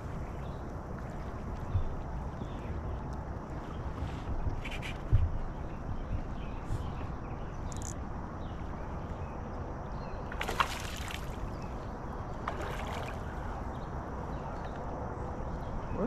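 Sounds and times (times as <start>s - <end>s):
water around a kayak: 0.0s - 16.0s
wind: 0.0s - 16.0s
fish splashing: 10.3s - 11.5s.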